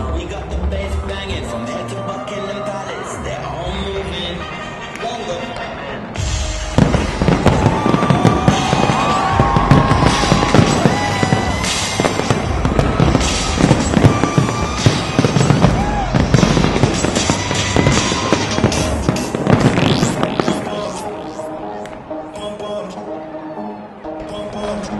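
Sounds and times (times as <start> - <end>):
fireworks crackling: 6.1 - 22.1
firework shells booming: 6.3 - 21.3.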